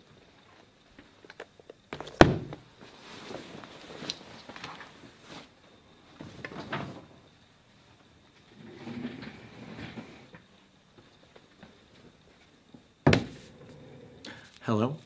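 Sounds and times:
loud thump: 0:02.2 - 0:02.6, 0:13.1 - 0:13.5.

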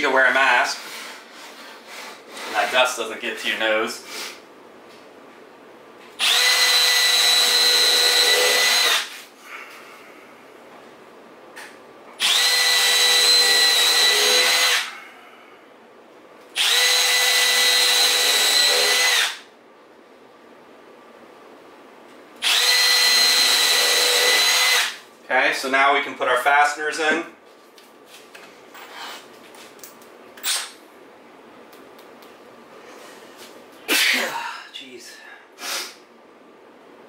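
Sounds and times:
cordless drill boring into wood: 0:01.9 - 0:02.7, 0:06.2 - 0:09.1, 0:12.2 - 0:14.9, 0:16.6 - 0:19.4, 0:22.4 - 0:25.0.

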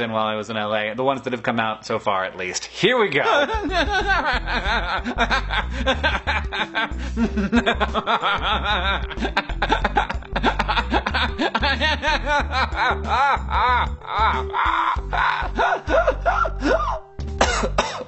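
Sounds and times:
person fake laughing: 0:03.2 - 0:17.0
background music with bass line: 0:03.3 - 0:18.0.

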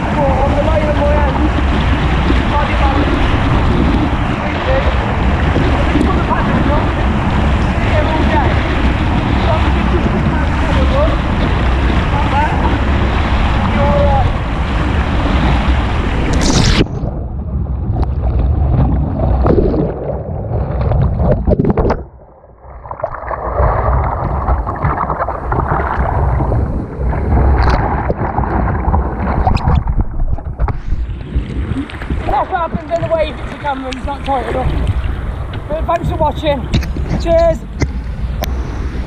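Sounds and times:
rushing white water: 0:00.0 - 0:17.0, 0:30.9 - 0:39.0
wind buffeting the camera: 0:00.0 - 0:39.0.

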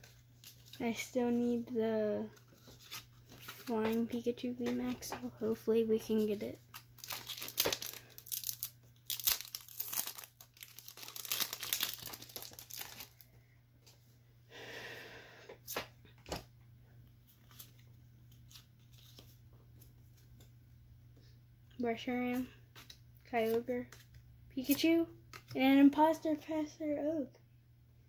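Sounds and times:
foil pack tearing and crinkling: 0:06.7 - 0:13.2.

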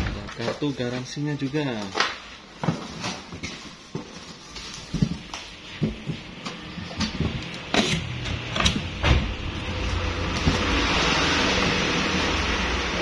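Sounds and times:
cardboard knocking and scraping: 0:02.6 - 0:09.3.

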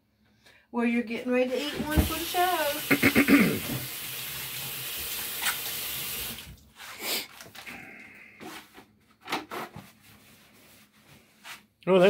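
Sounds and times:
faucet running into sink: 0:01.8 - 0:06.6.

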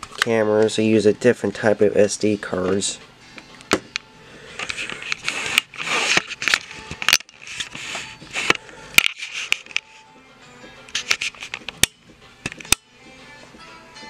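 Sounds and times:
plastic parts scraping: 0:04.6 - 0:10.0, 0:10.9 - 0:11.8.

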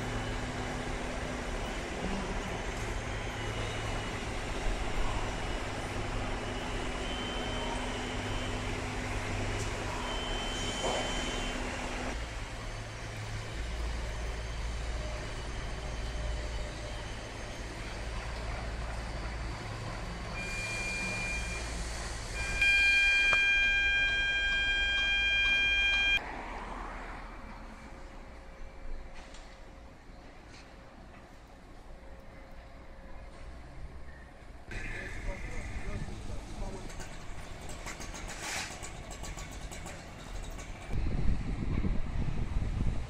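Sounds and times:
vehicle engines rumbling: 0:00.0 - 0:43.0
short high beeps: 0:09.9 - 0:11.6, 0:22.4 - 0:26.2.

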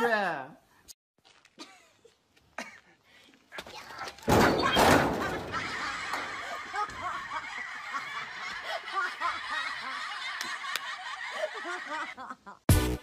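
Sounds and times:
crowd laughing: 0:05.0 - 0:12.6.

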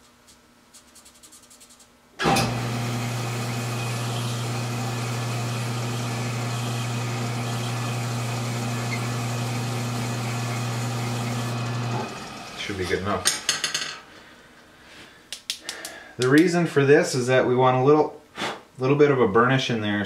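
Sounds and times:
lathe motor humming: 0:02.2 - 0:13.3.

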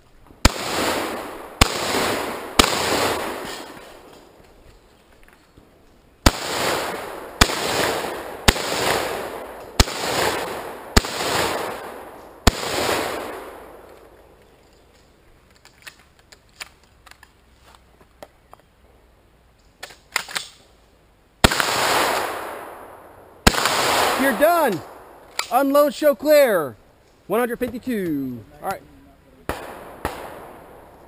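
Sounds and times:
pistol shot: 0:00.4 - 0:04.1, 0:06.2 - 0:13.9, 0:21.4 - 0:25.5, 0:29.5 - 0:31.0
rifle gunshots echoing: 0:00.4 - 0:04.4, 0:06.2 - 0:14.4, 0:21.4 - 0:25.9, 0:29.5 - 0:31.0.

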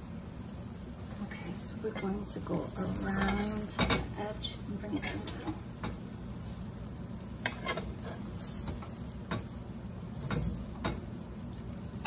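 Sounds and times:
pan simmering sizzle: 0:00.0 - 0:12.0
metal spoon stirring rice in a pan: 0:01.9 - 0:04.1, 0:07.4 - 0:09.5.

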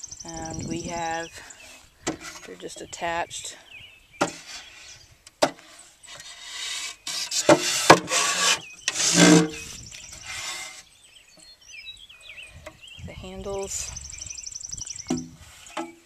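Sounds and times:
wood scraping on wood: 0:04.2 - 0:10.9.

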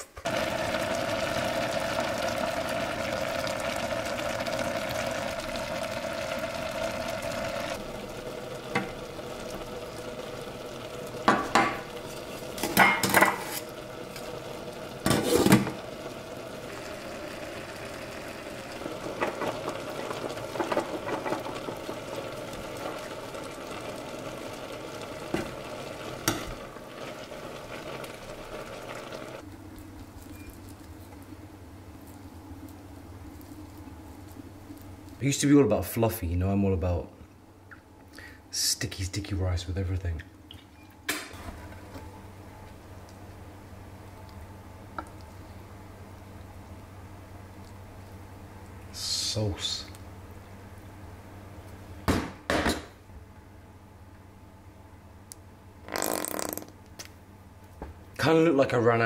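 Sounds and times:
food sizzling in a pan: 0:00.2 - 0:29.5.

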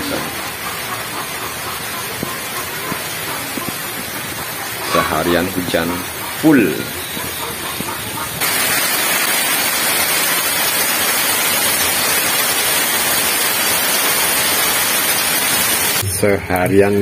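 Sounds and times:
heavy rain pouring: 0:00.0 - 0:16.0
water streaming off roof: 0:00.0 - 0:16.0.

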